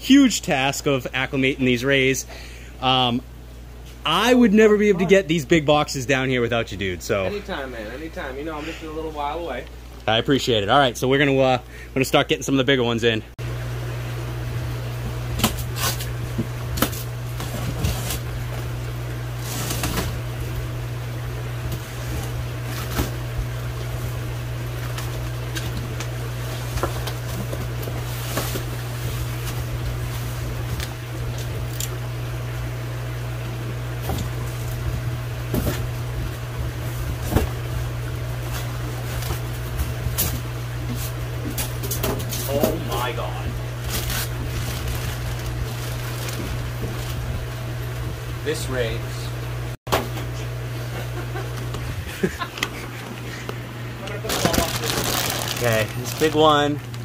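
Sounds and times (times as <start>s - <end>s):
steady low hum: 0.0s - 57.0s
plastic wrap crinkling and tearing: 43.8s - 47.4s, 54.1s - 57.0s.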